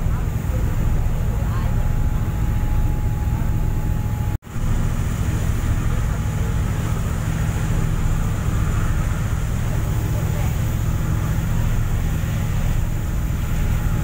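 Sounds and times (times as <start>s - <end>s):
churning wake water: 0.0s - 14.0s
ship engine rumble: 0.0s - 14.0s
wind: 0.0s - 14.0s.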